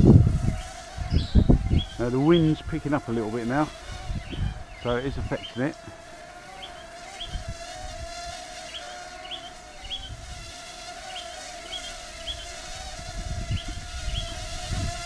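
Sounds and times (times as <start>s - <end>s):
wind buffeting microphone: 0.0s - 6.1s, 7.2s - 8.6s, 9.8s - 10.7s, 12.2s - 15.0s
drone propellers buzzing: 0.0s - 15.0s.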